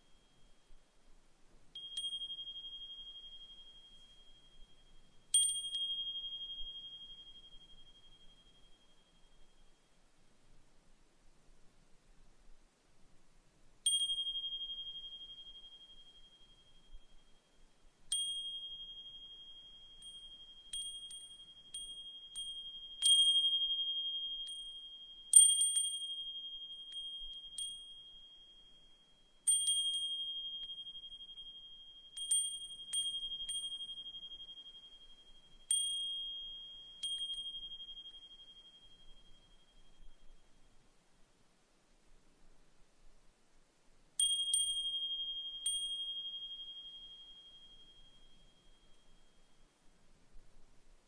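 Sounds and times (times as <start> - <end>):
brass wind chime ringing: 44.2 - 49.7.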